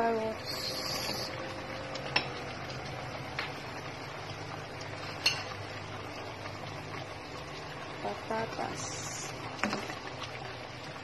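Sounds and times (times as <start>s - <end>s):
clinks against metal cooking pot: 5.2s - 5.6s.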